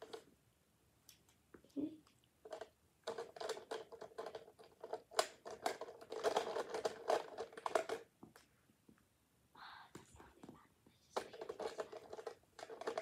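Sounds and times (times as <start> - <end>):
plastic markers clattering: 2.4 - 8.3, 10.0 - 13.0.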